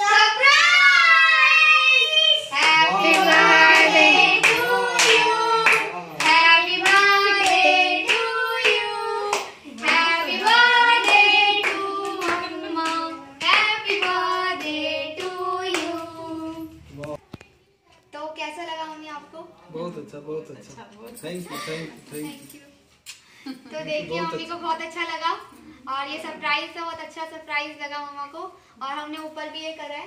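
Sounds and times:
children singing: 0.0s - 16.5s.

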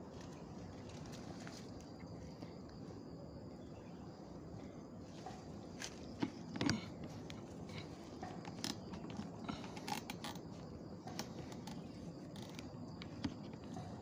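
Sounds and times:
faint steady background noise: 0.0s - 14.0s
rifle handling clicks and creaks: 5.2s - 13.9s.

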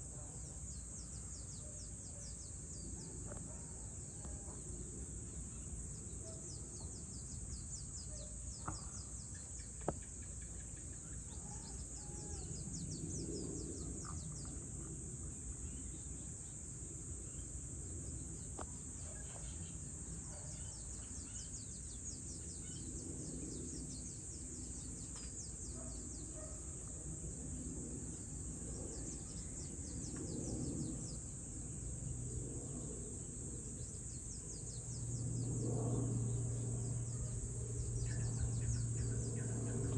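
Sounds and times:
insects trilling: 0.1s - 39.9s
low background rumble: 27.2s - 39.9s.

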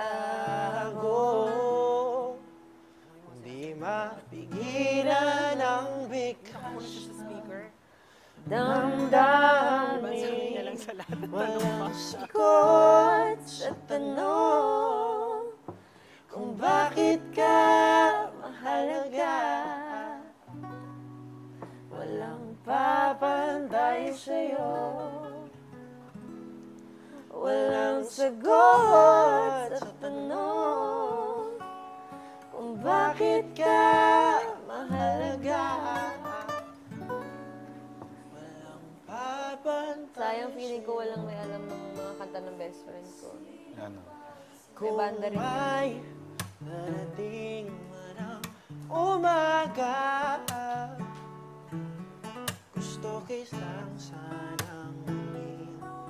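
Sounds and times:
man singing a slow ballad: 0.0s - 2.6s, 3.3s - 7.7s, 8.4s - 14.7s, 16.2s - 20.4s, 38.2s - 41.4s, 43.6s - 51.2s, 52.8s - 56.0s
guitar accompaniment: 0.0s - 56.0s.

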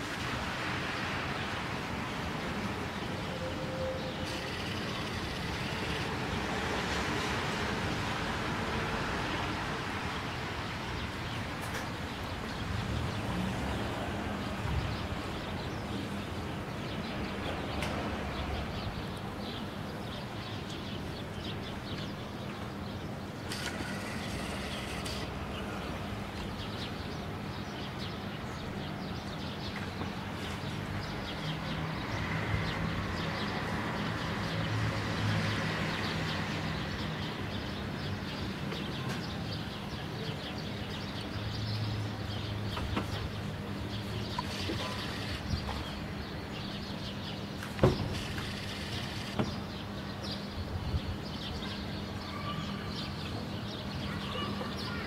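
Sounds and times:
steady background noise: 0.0s - 55.0s
birds chirping: 11.0s - 34.6s, 35.5s - 55.0s.

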